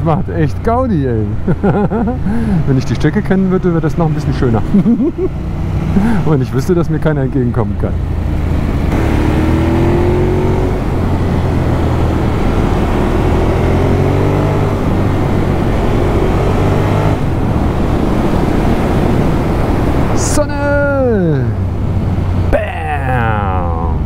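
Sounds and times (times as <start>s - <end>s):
motorcycle engine accelerating: 7.9s - 20.7s
wind rush on microphone: 8.2s - 22.5s.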